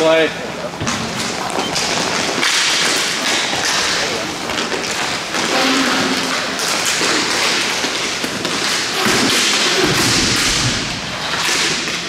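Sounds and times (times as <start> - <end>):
hockey sticks and puck tapping: 0.8 - 12.0.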